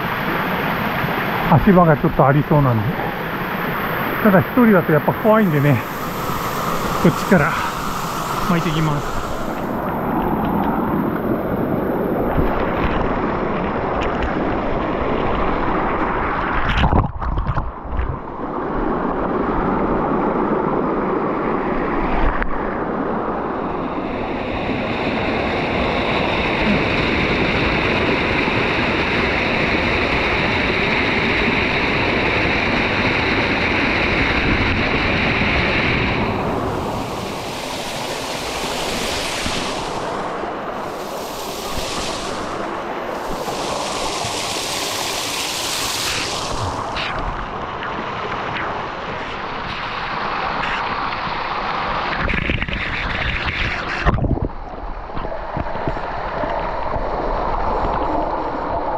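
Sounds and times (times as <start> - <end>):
higher steady hiss: 0.0 - 12.7, 35.3 - 48.0
water rushing over rocks: 0.0 - 58.9.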